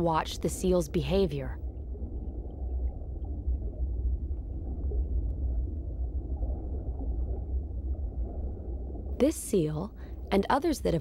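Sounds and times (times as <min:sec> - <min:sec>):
low underwater rumble: 0:00.6 - 0:09.3.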